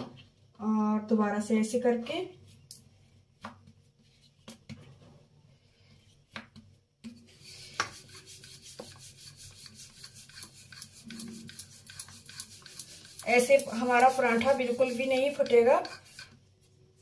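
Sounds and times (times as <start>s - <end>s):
rolling pin rubbing over dough: 7.1s - 16.4s.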